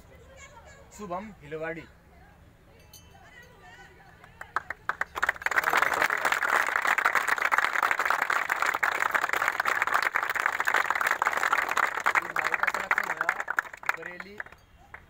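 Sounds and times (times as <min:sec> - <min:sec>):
crowd applauding: 0:04.4 - 0:15.0.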